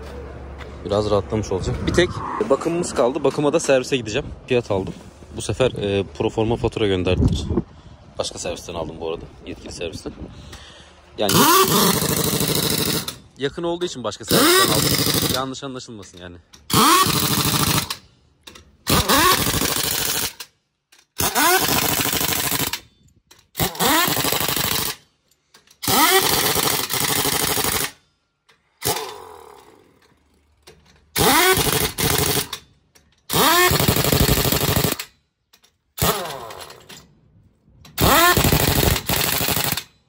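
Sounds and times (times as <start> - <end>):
pneumatic impact wrench hammering: 11.3 - 13.3, 14.2 - 15.5, 16.1 - 37.1, 37.8 - 40.0.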